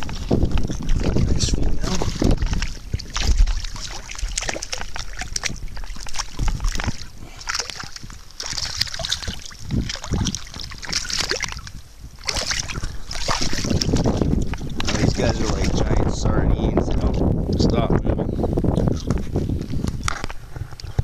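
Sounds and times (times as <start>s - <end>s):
footsteps on river gravel: 0.0s - 16.0s
shallow river water splashing: 0.0s - 16.3s.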